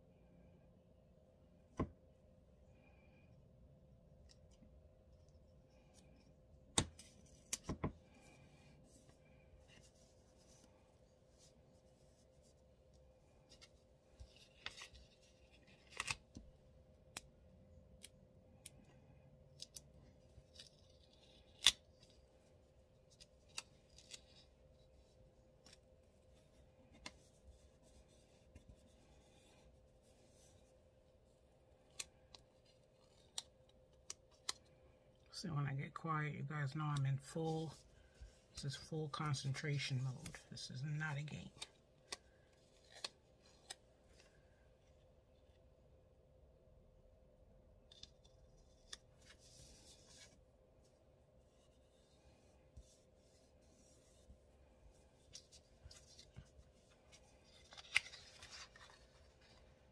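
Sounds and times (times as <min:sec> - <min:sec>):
paper rustling: 0:51.5 - 0:59.9.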